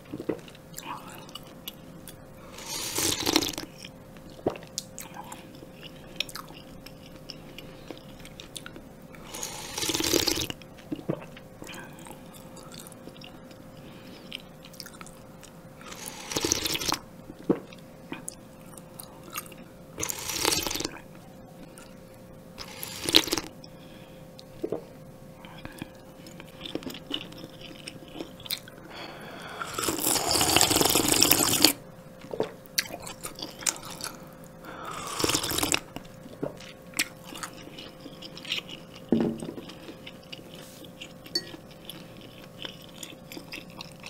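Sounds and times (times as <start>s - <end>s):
loud slurps: 2.5s - 3.6s, 9.3s - 10.5s, 15.9s - 17.0s, 29.7s - 31.8s, 34.9s - 35.8s.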